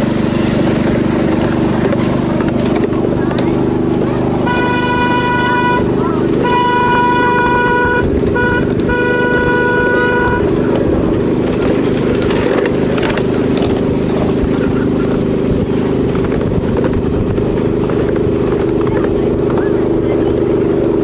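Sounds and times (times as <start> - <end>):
locomotive engine droning: 0.0 - 21.0
train cars rattling on track: 0.0 - 21.0
train horn: 4.4 - 10.9.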